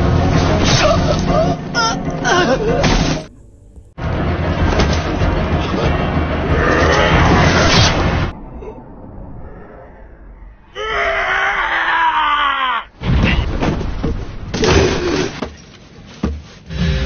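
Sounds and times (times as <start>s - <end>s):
noisy sound effects: 2.8s - 10.8s
person screaming: 10.8s - 12.9s.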